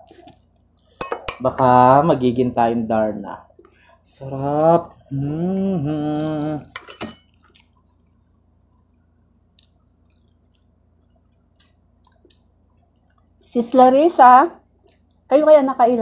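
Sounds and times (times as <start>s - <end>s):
person humming mmm: 5.1s - 6.7s
spoon clink: 6.8s - 7.5s
chewing and mouth clicks: 7.4s - 13.5s, 14.8s - 15.3s.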